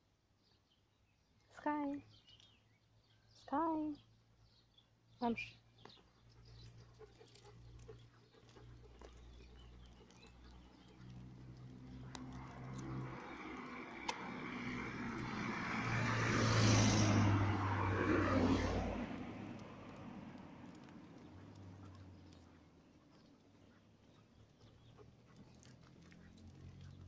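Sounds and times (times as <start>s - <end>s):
car passing: 6.9s - 23.1s, 24.8s - 27.0s.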